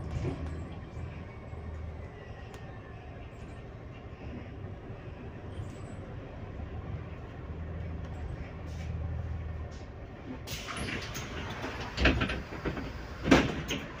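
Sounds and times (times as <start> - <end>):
bus drivetrain hum: 0.0 - 14.0
bus doors thudding: 10.5 - 14.0.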